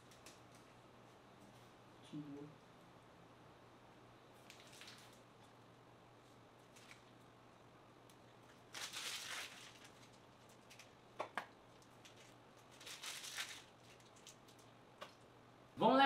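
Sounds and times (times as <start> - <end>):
low steady hum: 0.0 - 16.0
plastic piping bag crinkling: 4.4 - 5.3, 8.5 - 14.8.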